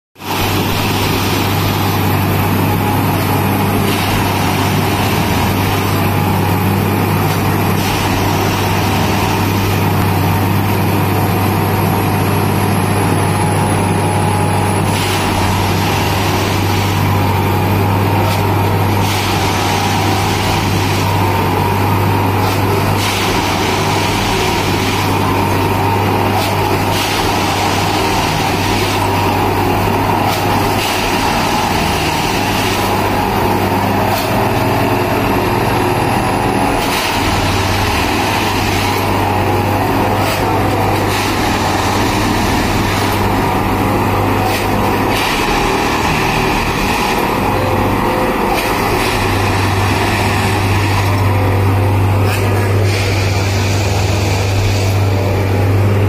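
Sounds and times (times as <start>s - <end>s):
diesel engine running: 0.2s - 56.0s.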